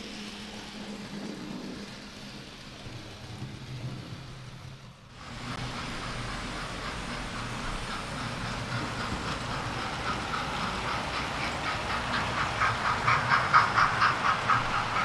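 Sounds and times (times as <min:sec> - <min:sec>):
model trains clicking on track: 0:00.0 - 0:15.0.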